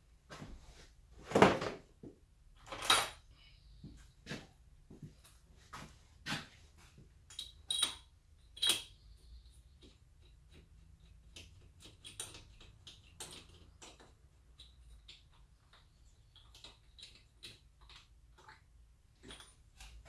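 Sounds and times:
metal tools clinking on metal: 7.2 - 9.4.

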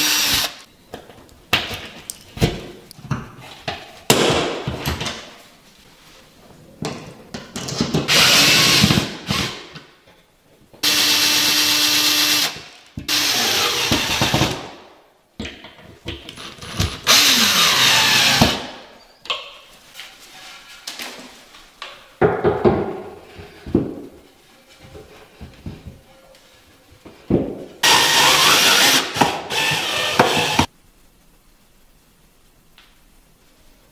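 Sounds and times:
cordless drill running: 0.0 - 0.5, 10.8 - 12.5, 13.1 - 14.4, 17.1 - 18.6, 27.8 - 30.7
knocks and handling sounds: 19.2 - 27.8.

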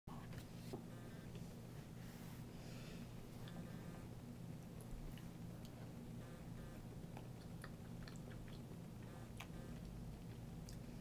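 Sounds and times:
steady low hum: 0.1 - 11.0
wet mouth sounds: 7.1 - 10.9.

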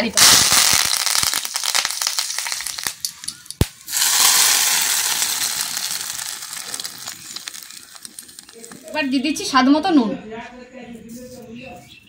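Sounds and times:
spices sizzling in hot oil: 0.0 - 9.2.

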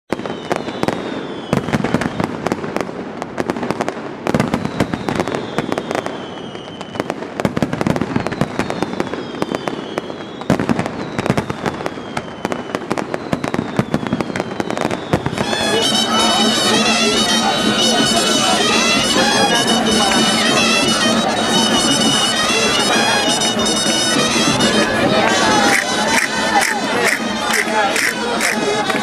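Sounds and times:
faint falling whistles: 0.1 - 2.3, 4.4 - 7.2, 8.0 - 15.7
fireworks bangs and crackling: 0.1 - 29.0.

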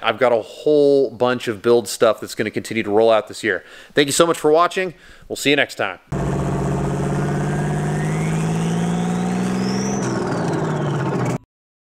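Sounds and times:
low engine-like drone: 6.1 - 11.4.

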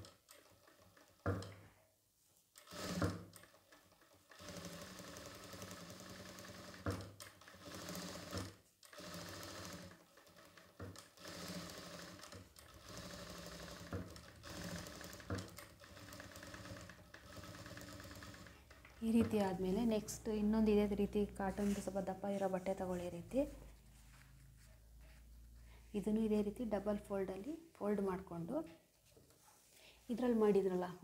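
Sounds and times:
sewing machine stitching: 0.0 - 1.6, 2.6 - 22.0.

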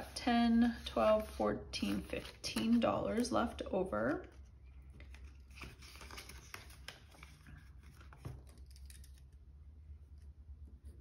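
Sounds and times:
paper and plastic pages rustling: 0.6 - 9.4.

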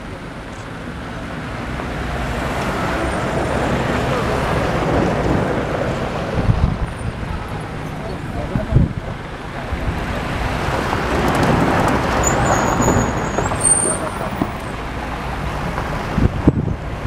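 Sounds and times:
faint murmured voices: 2.6 - 10.4.

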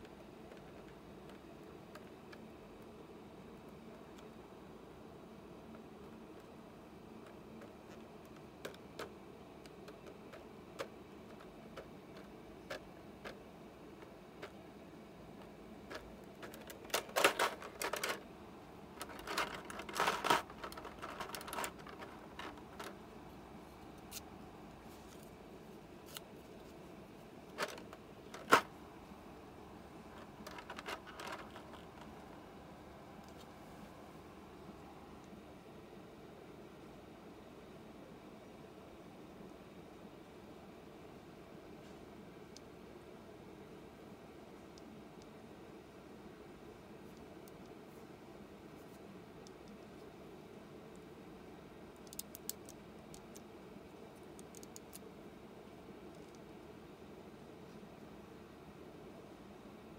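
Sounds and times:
plastic blister crackling: 15.8 - 18.2, 19.0 - 23.0, 30.1 - 32.3.

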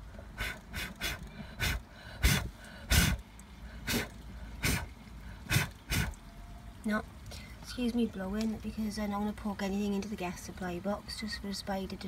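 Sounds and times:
person blowing puffs of air: 0.3 - 3.2, 3.8 - 6.2.

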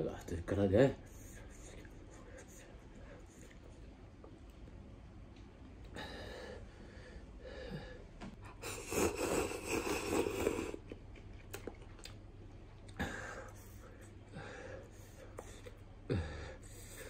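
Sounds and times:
rushing breaths: 5.9 - 10.8, 13.0 - 17.0
man slurping noodles: 8.6 - 10.9.

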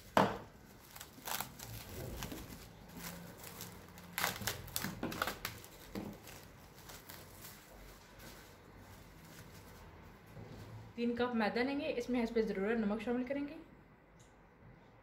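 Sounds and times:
cling film crinkling: 0.0 - 10.2.

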